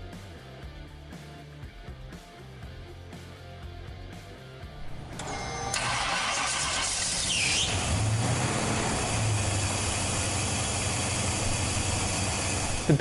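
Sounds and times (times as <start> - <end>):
car engine starting and idling: 4.8 - 13.0
brief squeal: 6.9 - 7.8.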